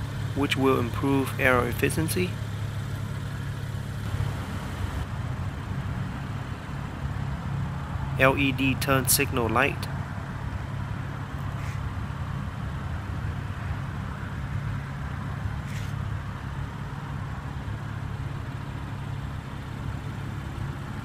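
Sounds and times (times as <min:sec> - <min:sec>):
low rumble of vehicle noise: 0:00.0 - 0:21.0.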